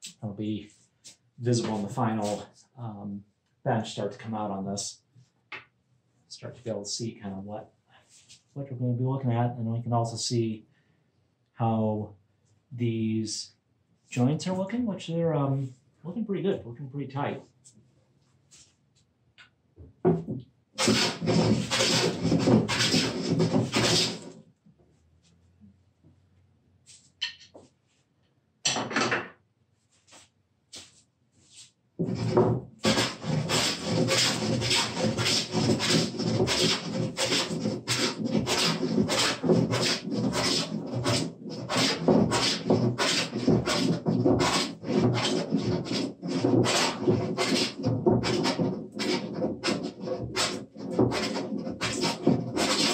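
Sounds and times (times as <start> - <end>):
hand plane scraping wood: 1.6 - 2.4, 20.8 - 24.4, 32.0 - 52.9
plane rasping on wood: 20.8 - 24.4, 32.0 - 52.9.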